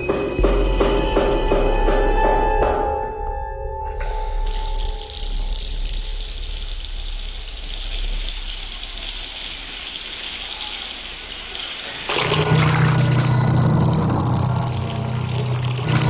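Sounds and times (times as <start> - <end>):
low steady drone: 0.0 - 9.6, 12.1 - 16.0
shower spraying water: 4.1 - 16.0.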